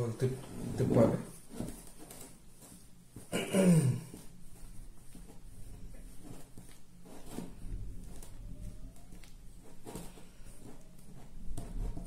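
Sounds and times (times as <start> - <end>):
wet squishing of batter mixing: 4.0 - 12.0.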